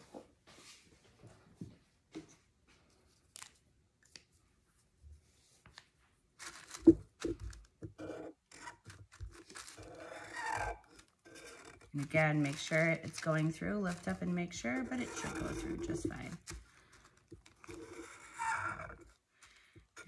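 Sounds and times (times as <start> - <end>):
paper rustling: 5.5 - 7.9, 8.5 - 20.0
marker scratching on paper: 11.3 - 16.3.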